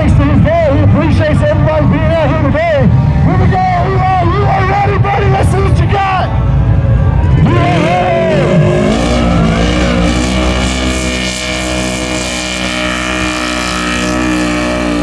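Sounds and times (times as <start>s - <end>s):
engine revving: 7.2s - 15.0s.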